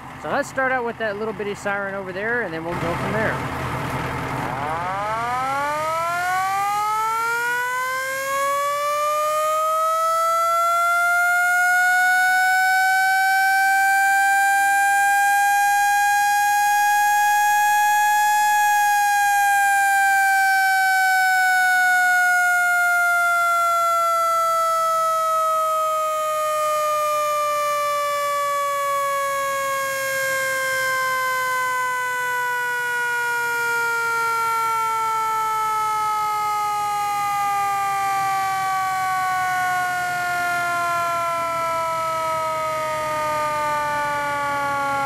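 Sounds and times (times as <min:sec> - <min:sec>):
mechanical siren wailing: 0:04.4 - 0:45.0.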